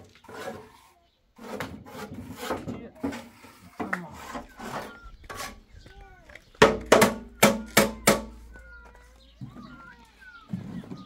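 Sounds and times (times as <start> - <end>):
sharp knocks: 6.6 - 8.6
thin gliding calls: 7.2 - 11.0.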